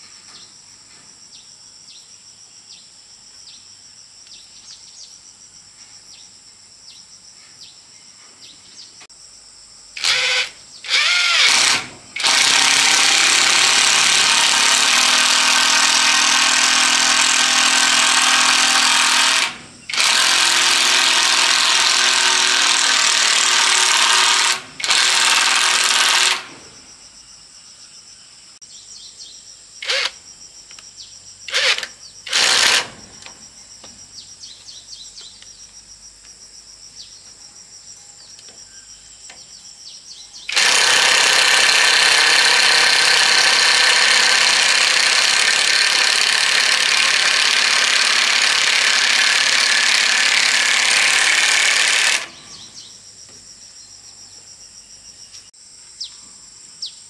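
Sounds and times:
insects chirping: 0.0s - 57.0s
power tool on metal roofing: 10.0s - 26.8s, 29.8s - 30.2s, 31.5s - 33.3s, 40.4s - 52.8s.

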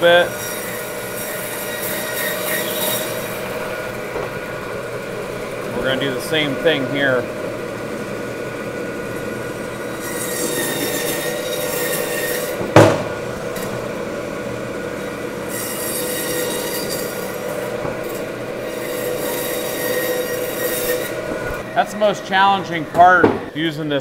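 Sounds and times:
bandsaw cutting bone: 0.0s - 23.6s
sharp knock: 12.6s - 13.2s.

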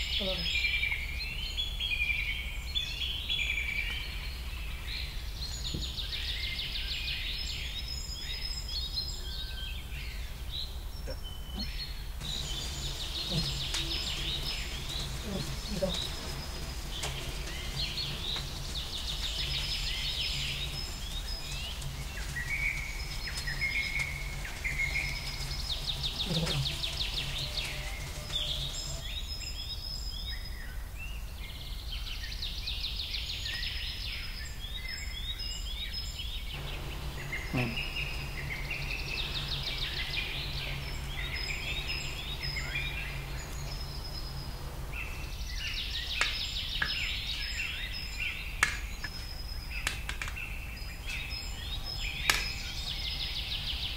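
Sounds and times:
small birds singing and chirping: 0.0s - 53.9s
steady low hum: 11.7s - 29.4s, 36.6s - 47.3s.

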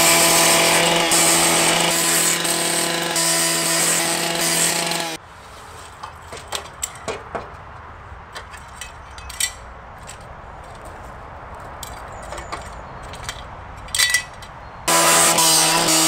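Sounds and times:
metal tubes clinking: 5.9s - 7.2s, 8.3s - 10.9s, 11.8s - 14.6s.

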